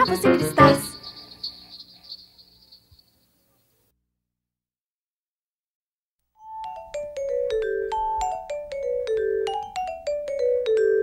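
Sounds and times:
mallet percussion melody: 6.4 - 11.0.

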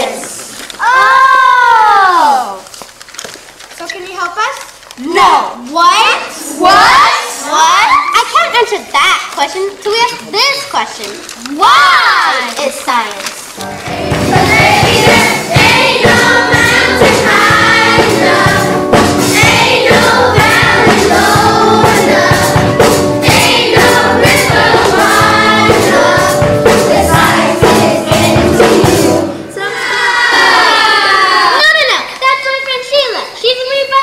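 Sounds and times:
children's chorus singing jazz: 0.0 - 1.1, 6.4 - 7.6, 13.5 - 31.6
drums steady beat: 13.6 - 29.4
jazz trio playing: 13.6 - 29.4.

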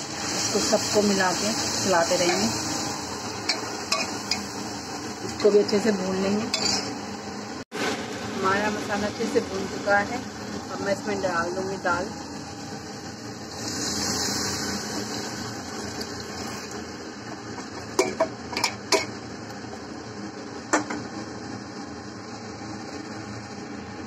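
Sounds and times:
spoon clinking against steel bowl: 6.6 - 6.9.

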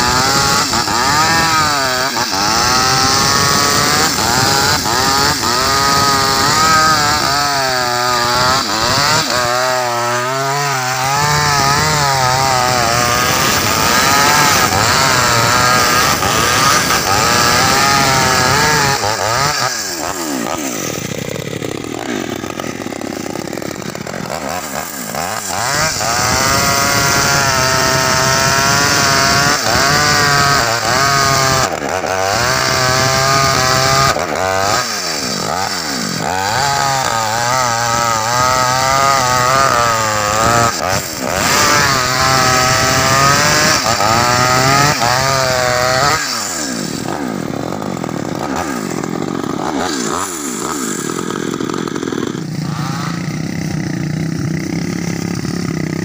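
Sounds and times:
chainsaw cutting through log: 0.0 - 56.0.

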